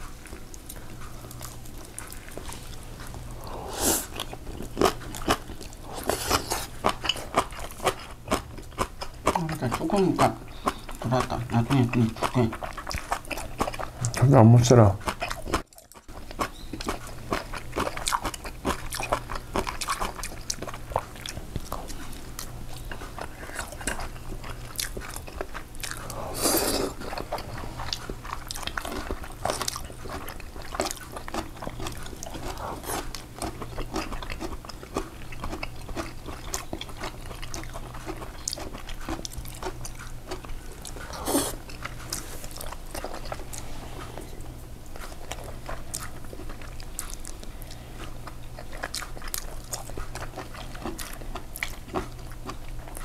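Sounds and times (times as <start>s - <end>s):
close chewing and biting: 0.0s - 53.0s.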